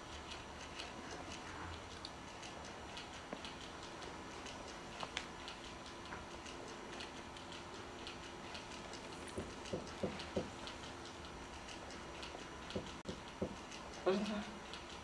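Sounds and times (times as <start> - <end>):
light ticking: 0.0 - 15.0
dull knocks: 12.8 - 13.6.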